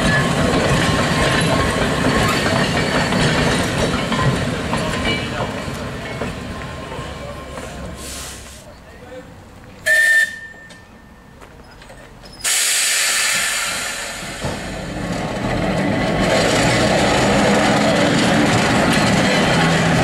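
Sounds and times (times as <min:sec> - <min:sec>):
tram motors and wheels rumbling: 0:00.0 - 0:20.0
tram whistle toot: 0:09.8 - 0:11.1
loud steady hiss: 0:12.4 - 0:14.9.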